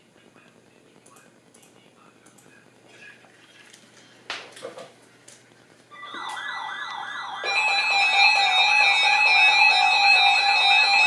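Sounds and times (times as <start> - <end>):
steady alarm tones: 5.9 - 11.0
warbling siren tone: 5.9 - 11.0.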